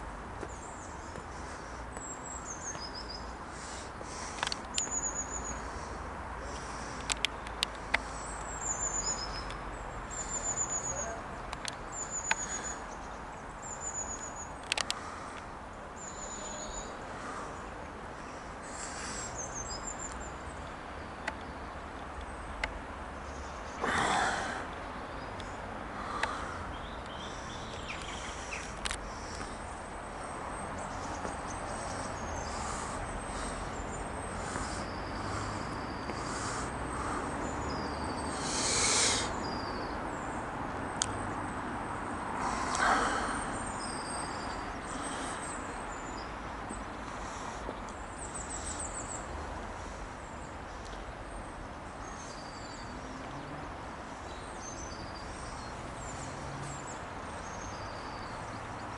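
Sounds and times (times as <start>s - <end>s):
steady outdoor hiss: 0.0s - 58.9s
small birds chirping: 0.4s - 58.9s
sharp clicks: 14.6s - 15.0s
rush of noise: 38.1s - 39.6s.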